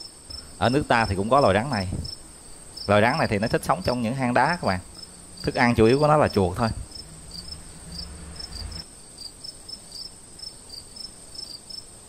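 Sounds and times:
steady high-pitched hum: 0.0 - 10.2
night insects chirping: 0.0 - 12.0
low rumble: 6.2 - 8.8.

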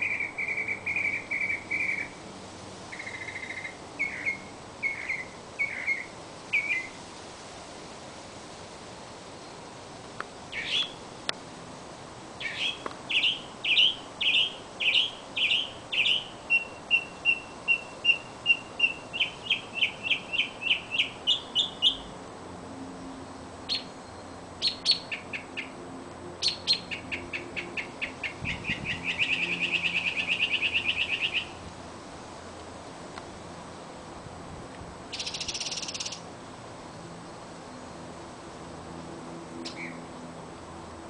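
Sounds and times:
songbird singing trills: 0.0 - 2.2, 2.9 - 7.0, 10.5 - 11.0, 12.4 - 22.1, 23.6 - 25.8, 26.4 - 31.6, 35.1 - 36.3, 39.6 - 40.0.

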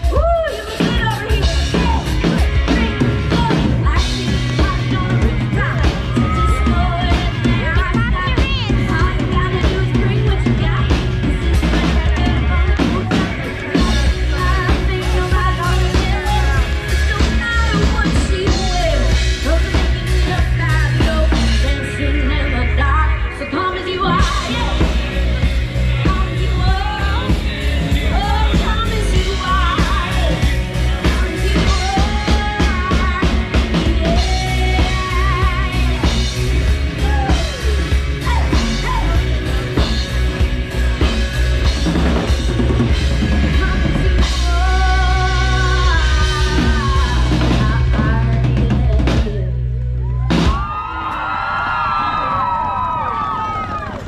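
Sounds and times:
person singing: 0.0 - 40.4, 42.8 - 49.8
live band playing: 0.0 - 54.0.

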